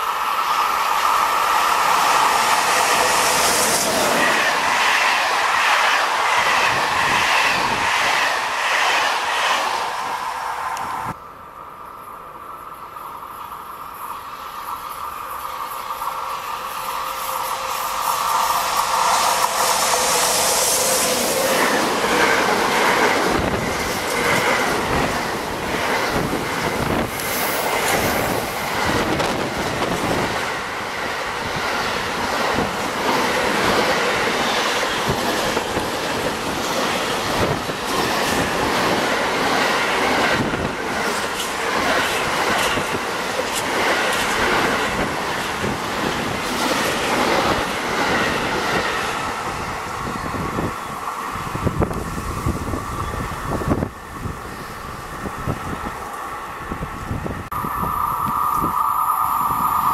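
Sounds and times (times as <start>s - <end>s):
train wheels squealing on rails: 0.0s - 59.9s
wheels clicking over rail joints: 21.4s - 54.2s.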